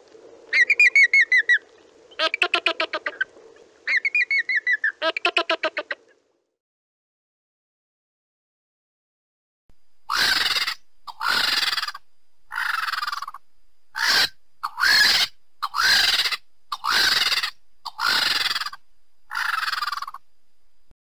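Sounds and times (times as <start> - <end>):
vulture calling: 0.5 - 6.1, 10.1 - 20.3.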